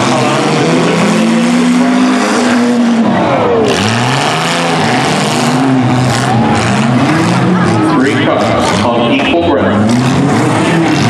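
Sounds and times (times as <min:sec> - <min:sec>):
car engines revving: 0:00.0 - 0:11.0.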